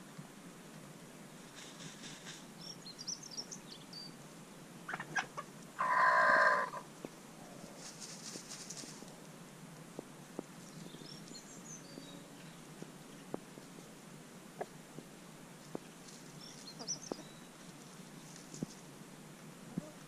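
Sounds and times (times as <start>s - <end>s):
small birds chirping: 1.5s - 6.9s, 10.3s - 19.2s
chicken calling: 4.9s - 6.9s.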